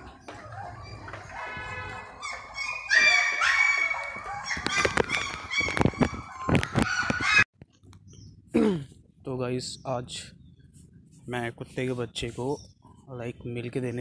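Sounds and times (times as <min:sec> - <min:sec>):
high-pitched animal cries: 0:00.8 - 0:07.4.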